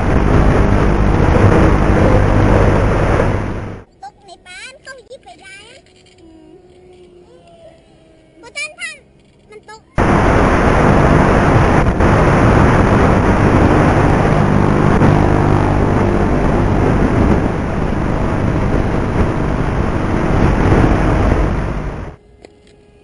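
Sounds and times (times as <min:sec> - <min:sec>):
electric motor and propeller drone: 0:00.0 - 0:03.8, 0:10.0 - 0:22.8
wind rushing over microphone: 0:00.0 - 0:03.9, 0:10.0 - 0:22.2.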